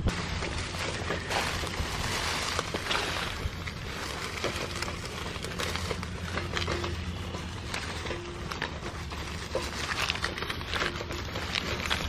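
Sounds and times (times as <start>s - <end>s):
footsteps on dry stubble: 0.0s - 12.0s
low engine hum: 0.0s - 12.0s
rustling: 0.0s - 12.0s
wind: 0.0s - 12.0s.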